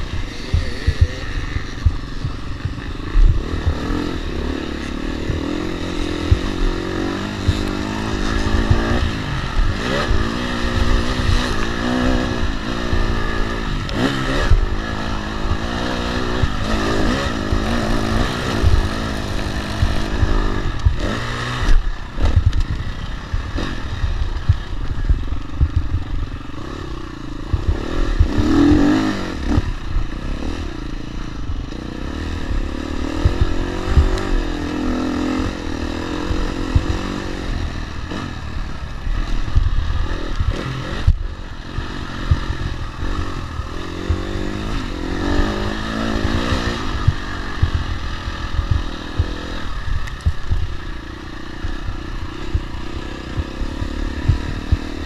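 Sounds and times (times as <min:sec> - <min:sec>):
dirt bike engine revving: 0:00.0 - 0:55.0
bike rattles and knocks: 0:15.6 - 0:26.2.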